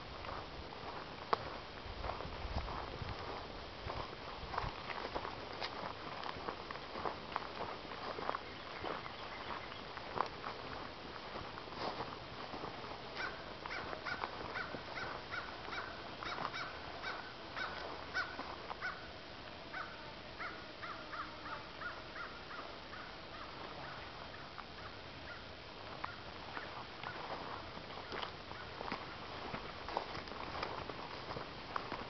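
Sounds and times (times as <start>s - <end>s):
bird calling: 8.4s - 9.9s, 13.2s - 19.1s, 19.7s - 25.5s.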